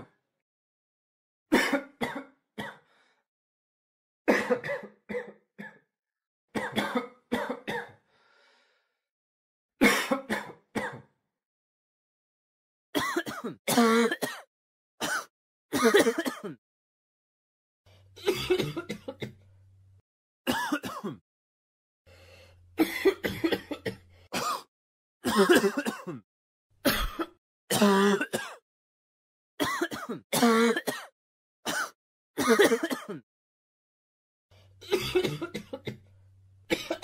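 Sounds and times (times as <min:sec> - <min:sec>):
person coughing: 0:01.5 - 0:02.8, 0:04.3 - 0:05.8, 0:06.6 - 0:08.0, 0:09.8 - 0:11.1, 0:13.0 - 0:16.6, 0:18.2 - 0:19.4, 0:20.5 - 0:21.2, 0:22.8 - 0:26.2, 0:26.9 - 0:28.6, 0:29.6 - 0:33.2, 0:34.8 - 0:36.0, 0:36.7 - 0:37.0.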